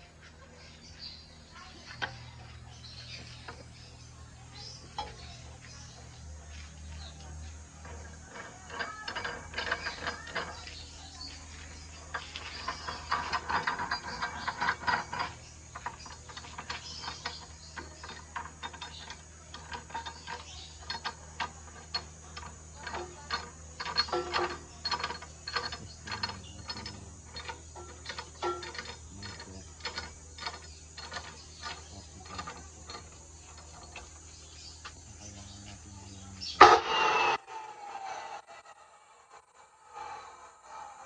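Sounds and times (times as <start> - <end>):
metal vise screw clicking and rattling: 2.0 - 6.1, 7.1 - 35.1.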